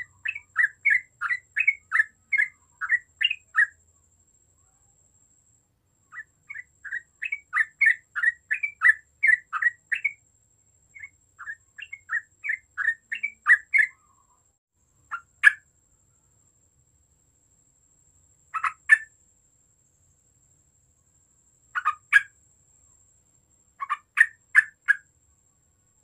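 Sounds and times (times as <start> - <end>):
bird singing chattering notes: 0.0 - 3.8, 6.2 - 10.2, 11.0 - 14.3, 18.6 - 19.1, 21.8 - 22.3, 23.8 - 25.0.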